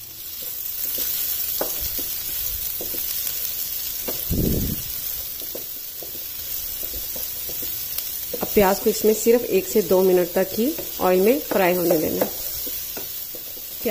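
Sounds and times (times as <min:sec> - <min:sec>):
onion sizzling in oil: 0:00.0 - 0:13.9
spatula tapping and scraping pan: 0:00.4 - 0:03.2, 0:04.0 - 0:04.3, 0:05.3 - 0:09.3, 0:10.0 - 0:13.9.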